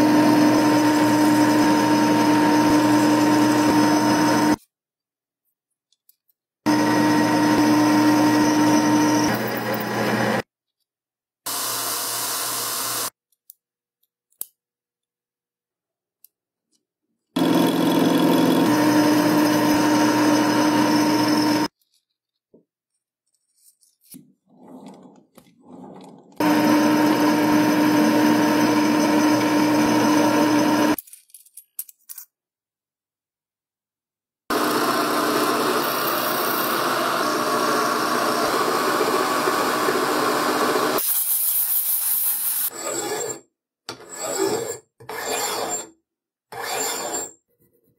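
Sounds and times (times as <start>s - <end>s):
metal lathe cutting whine: 0.0s - 4.6s, 6.7s - 10.4s, 17.4s - 21.7s, 26.4s - 31.0s, 34.5s - 41.0s.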